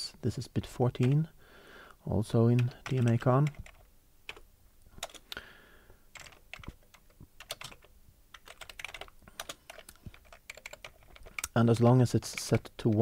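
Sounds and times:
keyboard typing: 0.9s - 1.3s, 2.5s - 5.4s, 6.1s - 13.0s.

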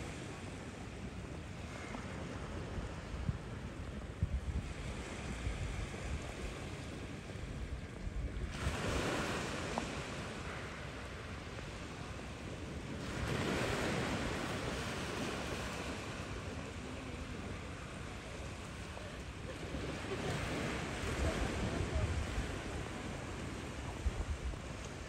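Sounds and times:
wind rumble on microphone: 0.0s - 25.0s
small waves breaking on beach: 8.3s - 25.0s.

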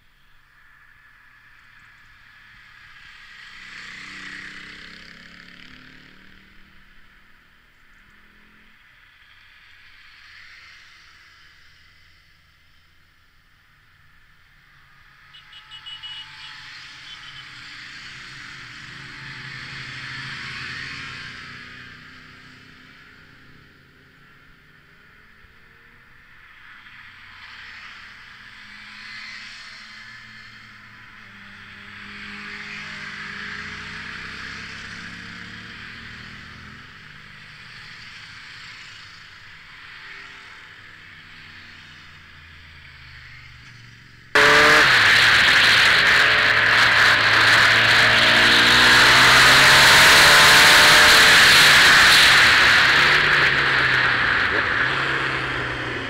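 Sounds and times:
motorcycles passing by: 0.6s - 12.1s, 14.6s - 56.0s
motorcycle engine revving: 44.3s - 56.0s.

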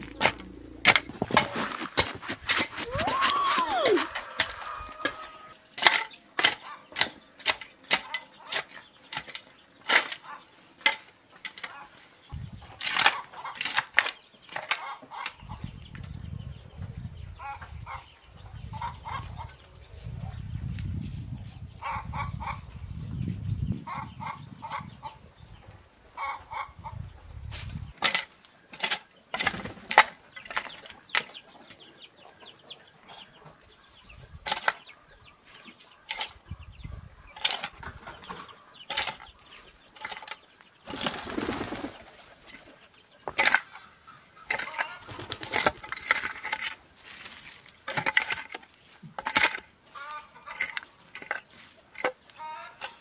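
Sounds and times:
hoe chopping into soil: 0.0s - 4.2s.

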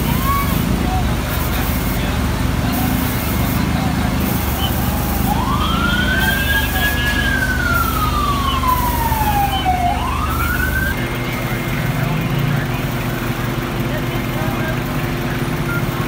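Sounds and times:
fire truck siren wailing: 0.0s - 16.0s
low engine hum: 0.0s - 16.0s.

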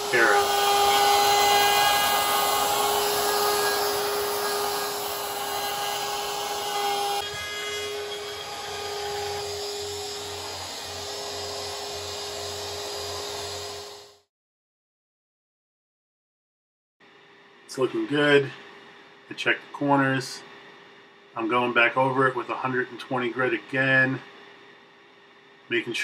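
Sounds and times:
router cutting wood: 0.0s - 14.2s.

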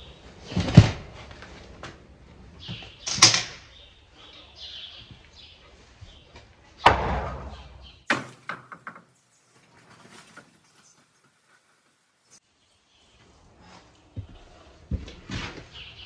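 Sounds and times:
loud bangs in barn stall: 6.8s - 8.8s.

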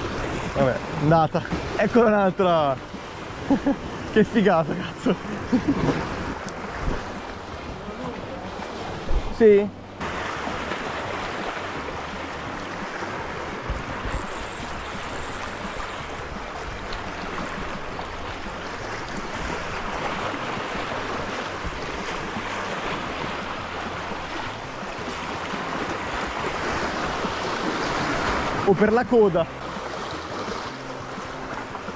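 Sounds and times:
sea water washing: 0.0s - 31.9s
wind rumbling on microphone: 10.0s - 28.7s.

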